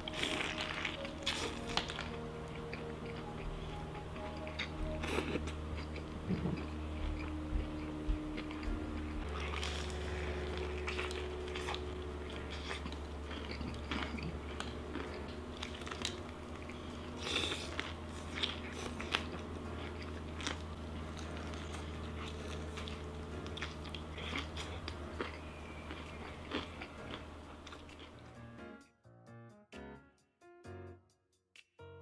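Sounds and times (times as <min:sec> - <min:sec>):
crisp crunching of fried chicken: 0:00.0 - 0:03.3, 0:08.4 - 0:28.2
wet chewing: 0:00.0 - 0:28.3
low hum: 0:00.0 - 0:28.6.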